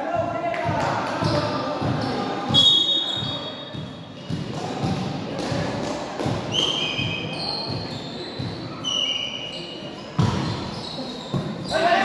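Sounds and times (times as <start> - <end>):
ball bouncing on wooden floor: 3.2 - 8.6, 10.2 - 10.7
short high squeaks: 6.6 - 11.8.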